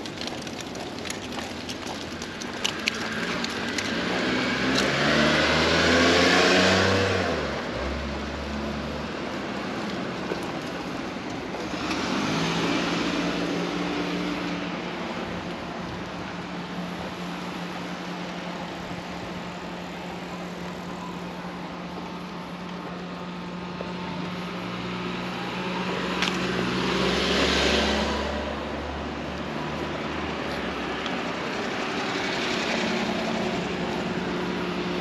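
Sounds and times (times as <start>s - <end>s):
cars passing: 0.0s - 35.0s
low engine hum: 0.0s - 35.0s.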